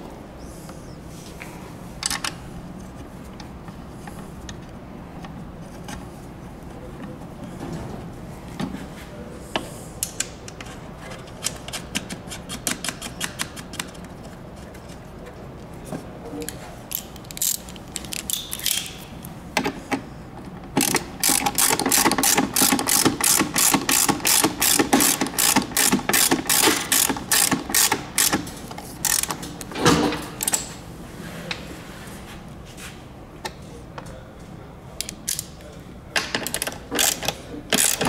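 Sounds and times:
hand ratchet clicking: 0:16.9 - 0:18.9, 0:20.8 - 0:29.4, 0:36.4 - 0:38.0.

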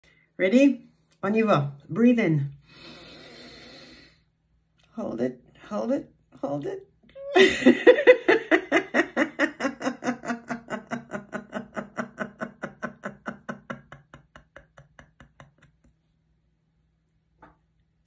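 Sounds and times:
woman laughing: 0:07.2 - 0:15.8.

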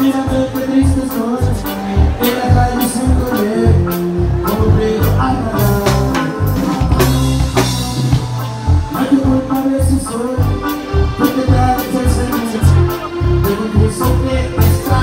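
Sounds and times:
live band music: 0:00.0 - 0:15.0
person singing: 0:00.0 - 0:15.0.

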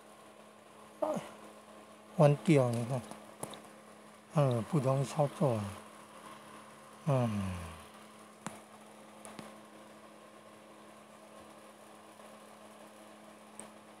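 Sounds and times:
steady low hum: 0:00.0 - 0:14.0
man's short vocal sound: 0:01.0 - 0:01.4, 0:07.1 - 0:07.8
faint clicks of thin wires: 0:02.6 - 0:03.7, 0:08.4 - 0:09.6, 0:13.5 - 0:13.8.

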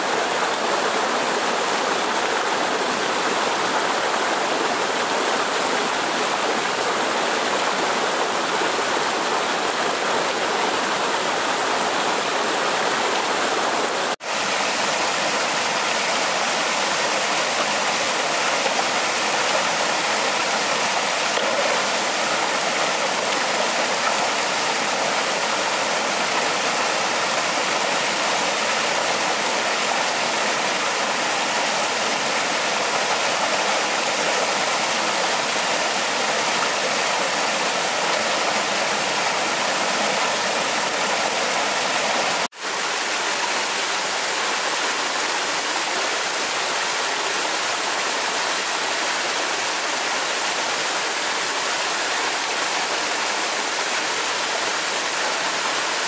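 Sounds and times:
stream water rushing: 0:00.0 - 0:56.0.

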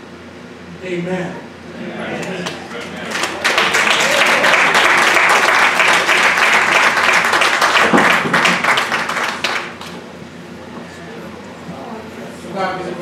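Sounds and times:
crowd applauding: 0:02.2 - 0:10.1.

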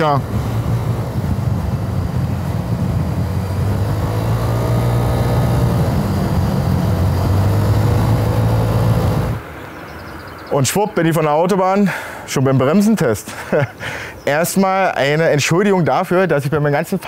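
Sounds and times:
scooter engine drone: 0:00.0 - 0:09.5
wind and road noise: 0:00.0 - 0:17.0.

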